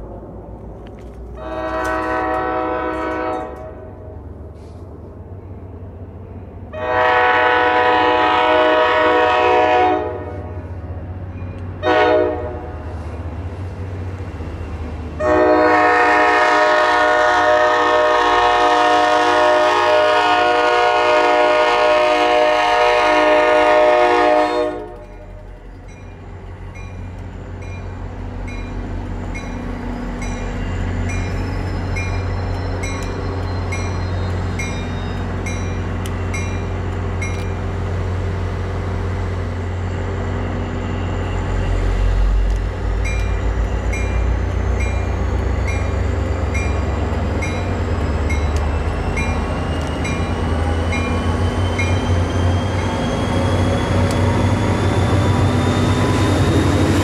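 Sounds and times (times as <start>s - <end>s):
train low rumble: 0.0s - 57.0s
locomotive air horn blasts: 1.4s - 3.9s, 6.7s - 10.7s, 11.8s - 12.9s, 15.2s - 25.2s.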